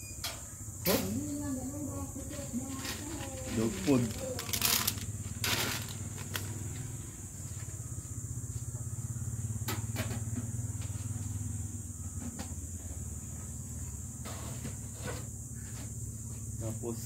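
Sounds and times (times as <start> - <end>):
dry dog food rattling in metal can: 3.2 - 6.5.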